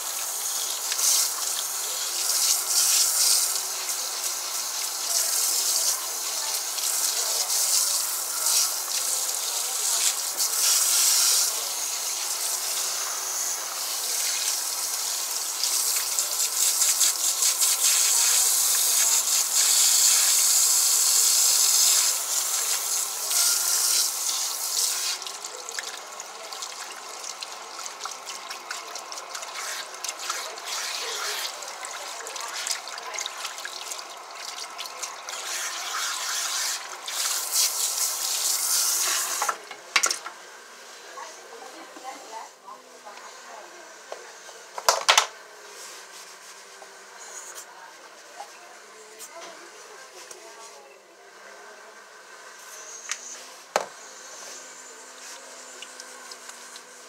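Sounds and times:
spray hose water splashing into sink: 0.0s - 40.2s, 55.1s - 57.0s.

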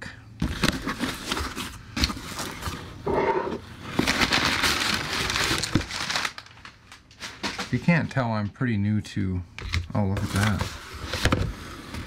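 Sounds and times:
packing paper rustling: 0.4s - 3.0s, 3.7s - 8.2s.

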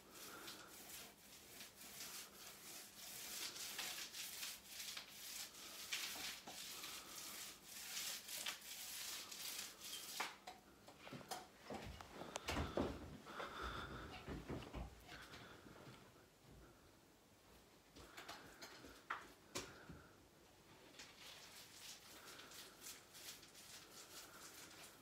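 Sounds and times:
paste roller swishing on wall: 0.0s - 10.4s, 21.0s - 25.0s.

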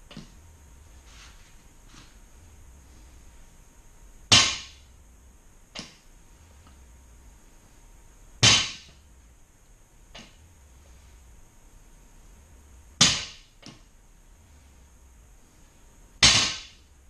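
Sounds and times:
barbell clanking thuds: 4.3s - 4.8s, 8.4s - 9.0s, 13.0s - 13.8s, 16.2s - 16.8s.

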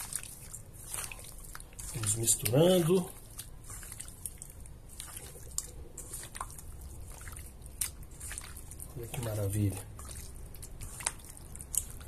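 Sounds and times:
hands squishing raw chicken: 0.0s - 12.0s.

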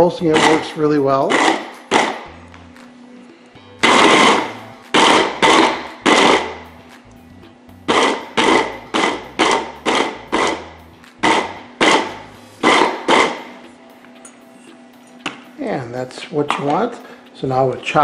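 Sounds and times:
blender motor chopping vegetables: 0.3s - 2.2s.

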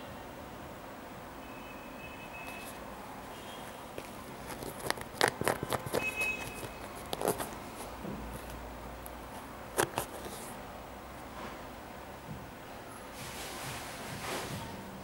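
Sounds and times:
fingers tapping a sneaker: 4.0s - 8.6s.

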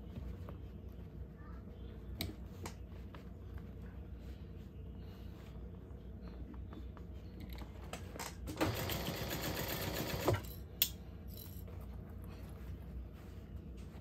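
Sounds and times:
sewing machine stitching: 8.5s - 10.4s.

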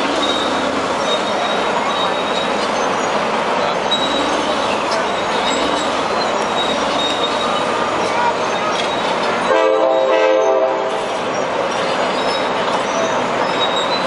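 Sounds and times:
heavy machine engine: 0.0s - 14.0s
multi-tone horn: 9.5s - 10.9s.

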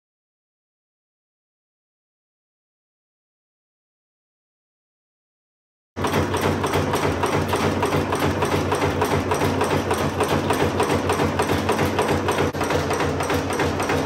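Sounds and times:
machine hum: 6.0s - 14.0s
nail making machine clatter: 6.0s - 14.0s.

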